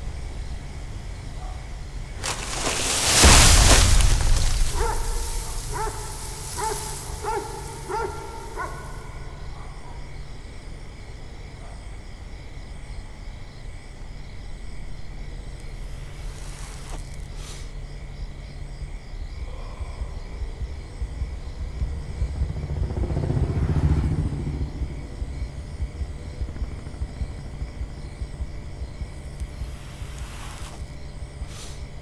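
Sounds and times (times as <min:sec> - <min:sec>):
thunder rumble: 0:02.1 - 0:09.4, 0:19.4 - 0:29.8
dog barking: 0:04.7 - 0:10.0.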